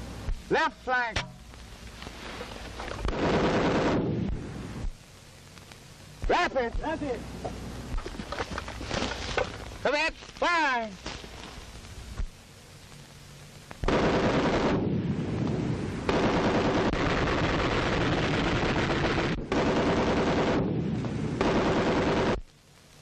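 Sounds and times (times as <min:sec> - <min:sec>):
machine gun automatic fire: 0:03.1 - 0:04.1, 0:13.9 - 0:14.9, 0:16.1 - 0:20.7, 0:21.4 - 0:22.4.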